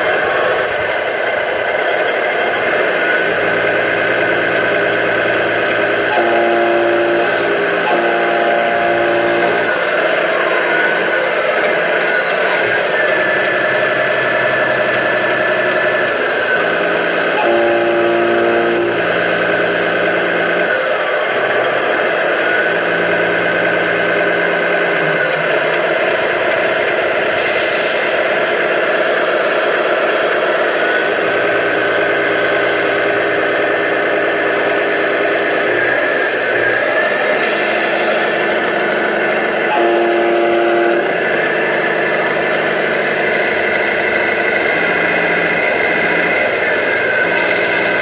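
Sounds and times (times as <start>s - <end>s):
model truck engine drone: 0.0s - 48.0s.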